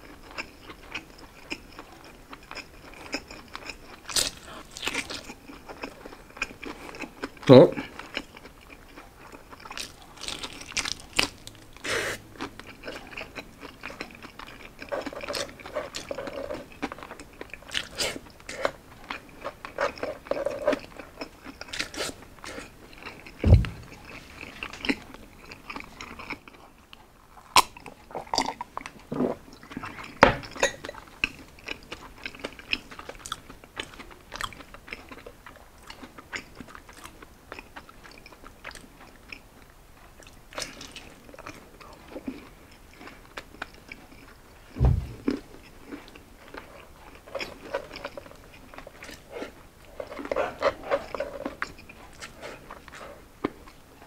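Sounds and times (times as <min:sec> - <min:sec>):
person chewing crispy food: 0:00.0 - 0:54.0
heavy thumps: 0:23.4 - 0:24.2, 0:44.8 - 0:45.5.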